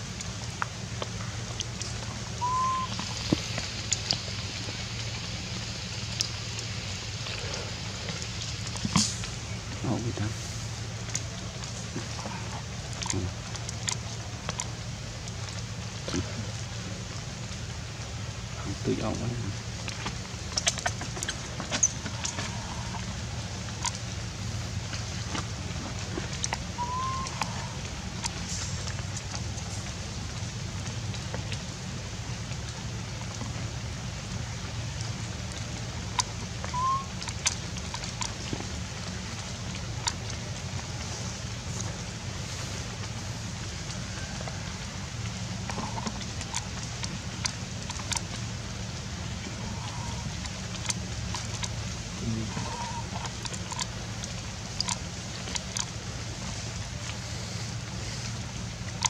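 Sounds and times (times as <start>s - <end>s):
steady hiss: 0.0s - 26.8s, 38.8s - 46.0s, 56.0s - 59.0s
dripping ticks: 0.0s - 59.0s
steady low hum: 0.0s - 59.0s
whistle-like note: 2.4s - 3.0s, 26.8s - 27.4s, 36.7s - 37.1s.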